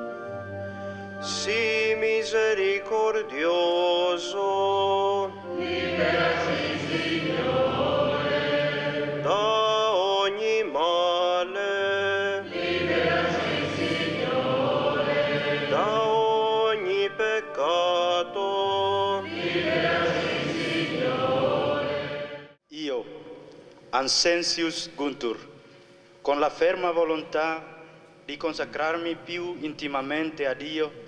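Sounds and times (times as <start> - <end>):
voices singing a liturgical chant: 3.0 - 22.6.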